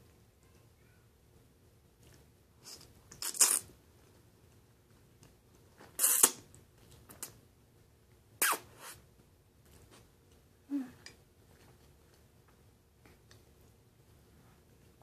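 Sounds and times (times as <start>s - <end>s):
mouth clicks: 6.0s - 6.4s, 8.4s - 9.0s.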